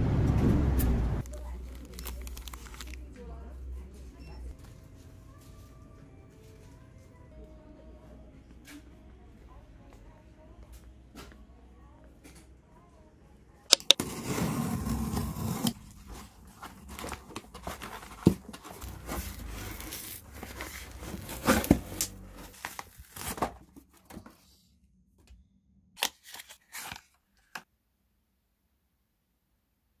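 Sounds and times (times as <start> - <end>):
cardboard and packaging rustling: 1.2 - 3.5, 13.8 - 24.5, 26.0 - 27.6
cardboard box tearing open: 13.9 - 15.8, 16.7 - 23.6.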